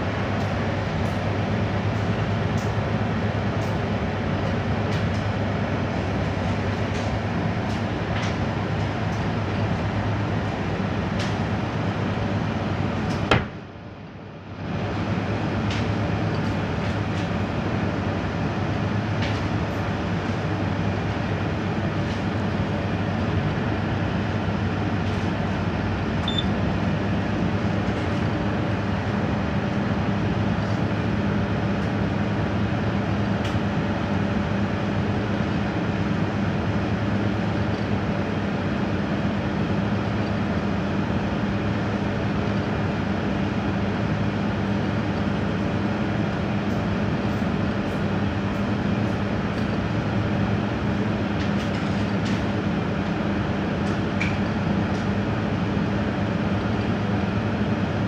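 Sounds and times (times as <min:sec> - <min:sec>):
microwave oven humming: 0:00.0 - 0:58.0.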